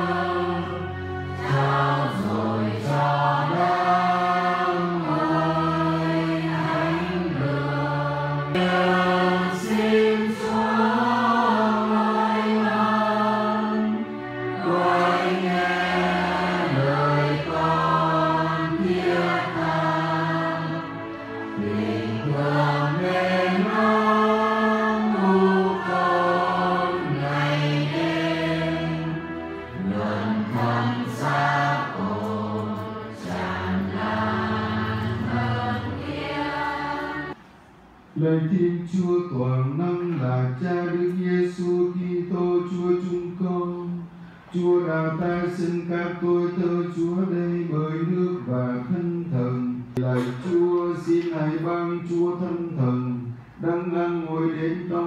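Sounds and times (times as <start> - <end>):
church choir singing a hymn: 0.0 - 37.4.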